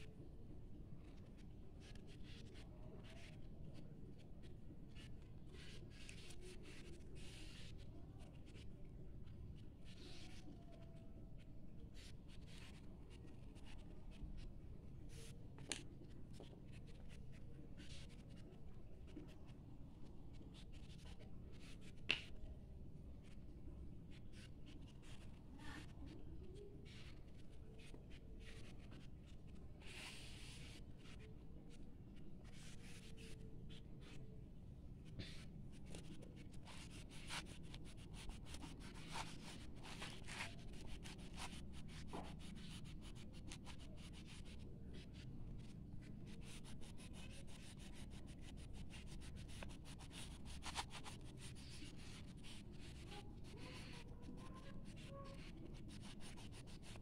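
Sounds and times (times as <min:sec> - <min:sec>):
crayon scratching on paper: 0:04.9 - 0:08.6, 0:12.0 - 0:14.5, 0:20.3 - 0:22.0, 0:24.3 - 0:34.2, 0:35.1 - 0:57.0.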